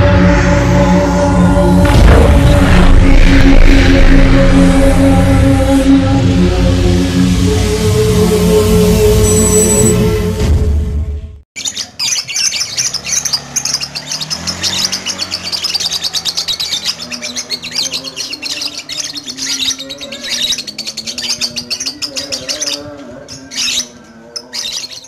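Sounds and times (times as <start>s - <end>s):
lovebird chirping: 9.2s - 10.0s.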